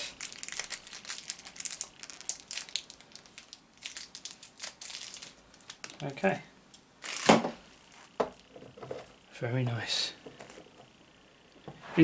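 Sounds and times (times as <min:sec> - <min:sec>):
plastic packaging crinkling: 0:00.0 - 0:06.2, 0:07.0 - 0:08.5.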